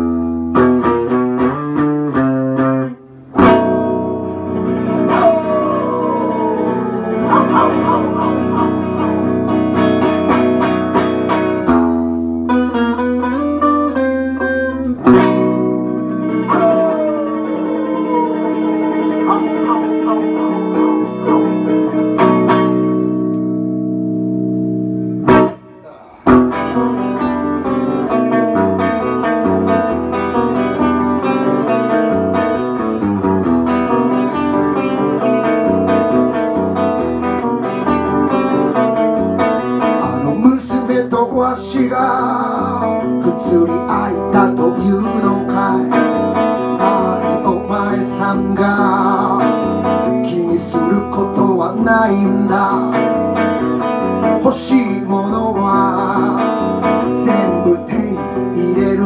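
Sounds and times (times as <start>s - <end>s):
electric guitar: 0.0s - 59.0s
man singing: 4.8s - 9.1s, 16.4s - 21.7s, 40.0s - 53.5s, 54.3s - 59.0s.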